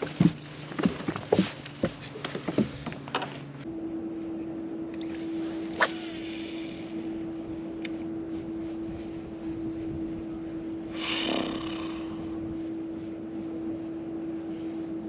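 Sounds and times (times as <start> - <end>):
electric trolling motor humming: 2.7 - 15.0
reel spool whirring: 4.9 - 8.2
fishing rod swish: 5.0 - 7.0.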